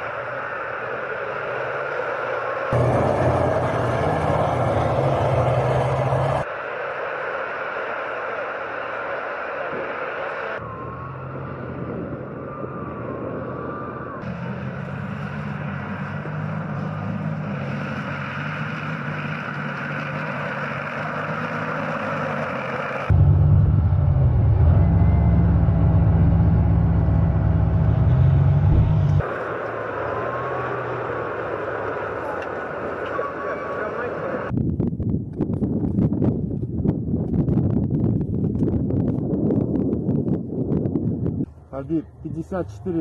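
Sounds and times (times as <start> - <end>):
diesel engines running: 0.0 - 34.6.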